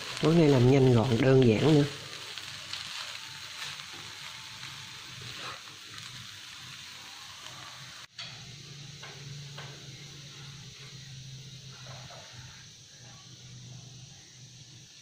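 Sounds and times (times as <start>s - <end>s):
fried rice sizzling in a wok: 0.0s - 15.0s
spatula scraping and stirring: 2.2s - 6.2s.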